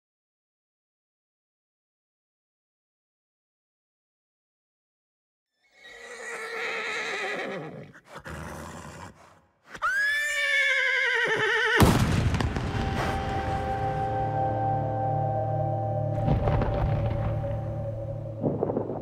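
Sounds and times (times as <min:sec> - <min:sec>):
horse whinnying: 0:05.6 - 0:11.8
sudden music hit: 0:11.9 - 0:19.0
sustained music held tones: 0:12.6 - 0:19.0.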